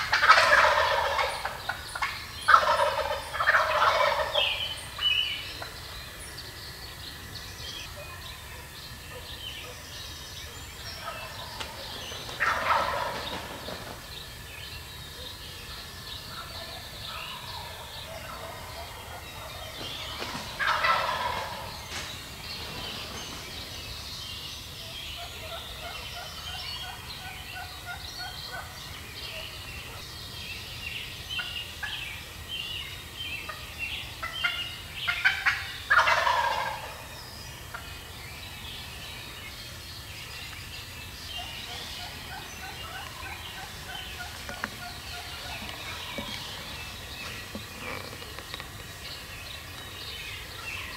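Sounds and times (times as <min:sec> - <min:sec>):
turkeys gobbling: 0:00.0 - 0:05.8, 0:10.8 - 0:14.2, 0:15.1 - 0:22.1, 0:24.8 - 0:30.0, 0:31.4 - 0:32.1, 0:33.5 - 0:38.0, 0:41.2 - 0:49.6
small birds chirping: 0:00.0 - 0:50.9.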